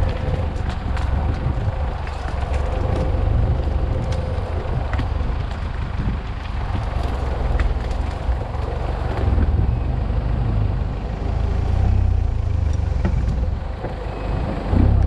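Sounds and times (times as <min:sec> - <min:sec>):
twigs cracking against vehicle: 0:00.0 - 0:09.6
engine rumbling under load: 0:00.0 - 0:15.0.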